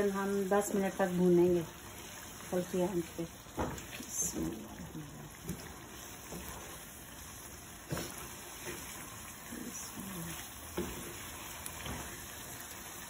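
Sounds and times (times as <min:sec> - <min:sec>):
food sizzling in oil: 0:00.0 - 0:13.0
wooden spatula scraping pan: 0:05.5 - 0:06.9, 0:07.8 - 0:09.1, 0:10.3 - 0:12.2.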